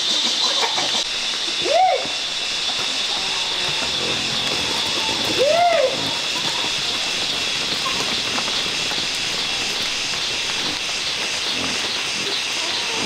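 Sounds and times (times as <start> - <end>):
insect drone: 0.0 - 13.0
outdoor hiss: 0.0 - 13.0
rising and falling call: 1.0 - 11.3.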